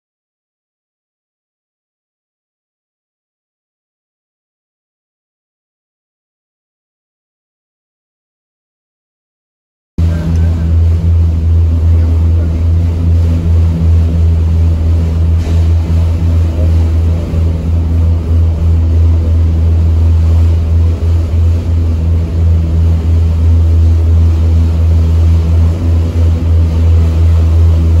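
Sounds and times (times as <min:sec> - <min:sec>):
ferry engines droning: 0:10.0 - 0:28.0.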